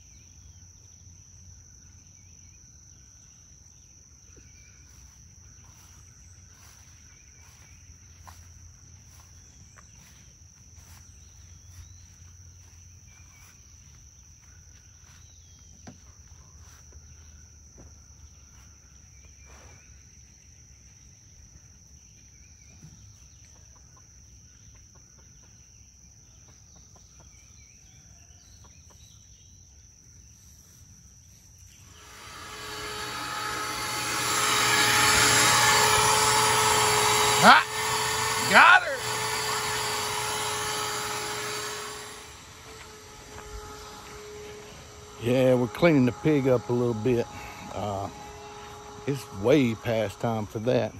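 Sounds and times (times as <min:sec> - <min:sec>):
insects droning: 0:00.0 - 0:50.9
loud mechanical noise: 0:31.8 - 0:50.9.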